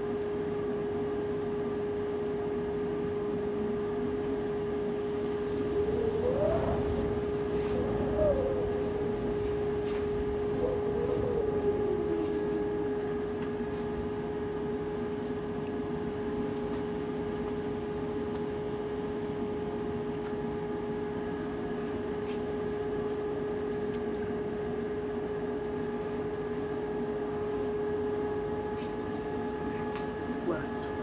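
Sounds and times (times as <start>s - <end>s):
steady hum tone: 0.0s - 31.0s
strong wind over choppy water: 5.8s - 12.8s.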